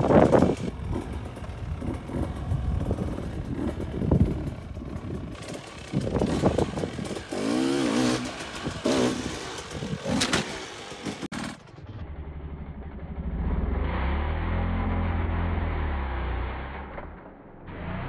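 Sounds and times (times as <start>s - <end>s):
dirt bike engine revving: 0.0s - 11.7s
low engine drone: 11.6s - 18.0s.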